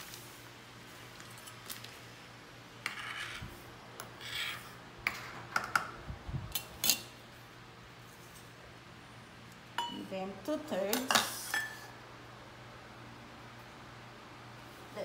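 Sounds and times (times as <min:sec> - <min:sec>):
plastic bag crinkling: 0:01.0 - 0:02.1
knife scraping metal cup: 0:02.8 - 0:03.5
metal clinking on metal and ceramic: 0:09.8 - 0:10.0.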